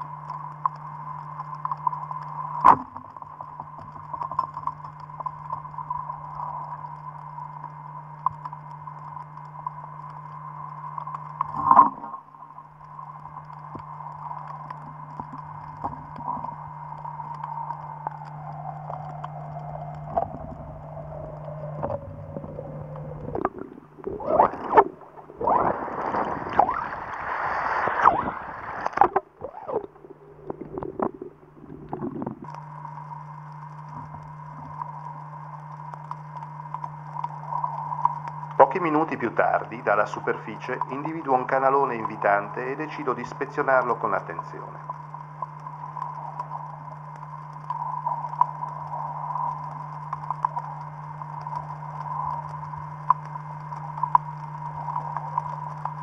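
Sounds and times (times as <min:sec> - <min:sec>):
low underwater hum: 0:00.0 - 0:56.0
water gurgling and sloshing: 0:00.0 - 0:56.0
high whine sliding down: 0:12.9 - 0:32.6.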